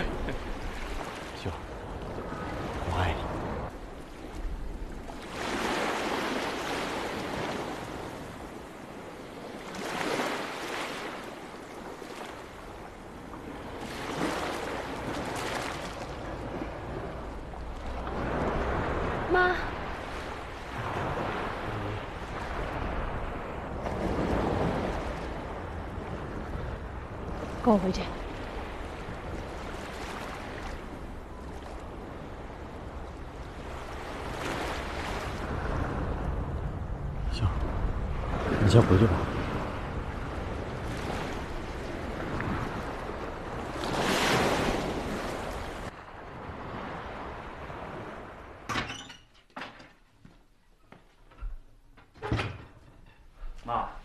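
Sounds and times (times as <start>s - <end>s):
surf rushing: 0.0s - 3.7s
waves washing onto sandy beach: 0.0s - 48.6s
wind: 0.0s - 54.0s.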